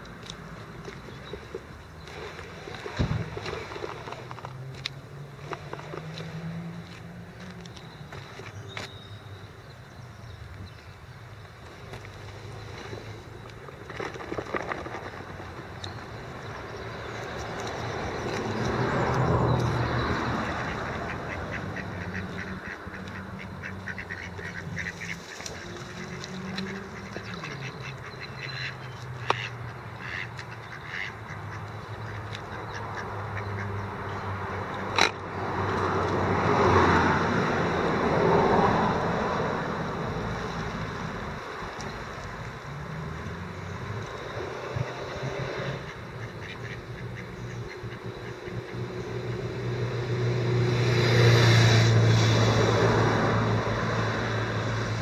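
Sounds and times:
passing road traffic: 0.0 - 55.0
ducks quacking: 20.1 - 35.2, 44.8 - 49.0.

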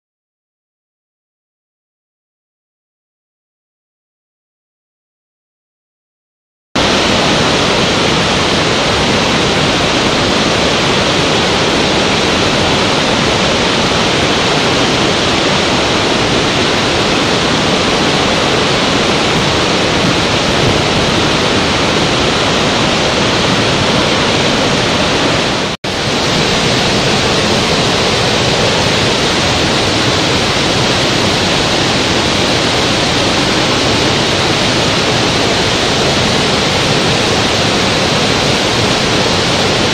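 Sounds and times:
waterfall roaring: 6.8 - 39.9.

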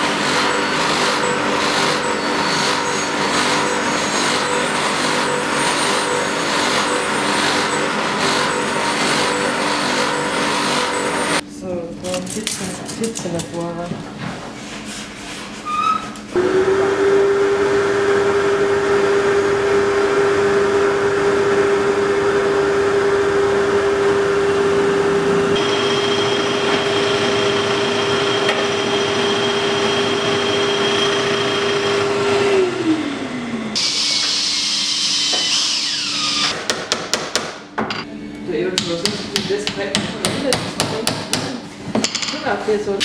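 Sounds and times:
drill press humming: 0.0 - 11.4, 16.3 - 36.6
dust extraction hose sucking: 0.0 - 11.4
power drill whining into wood: 33.7 - 36.6.

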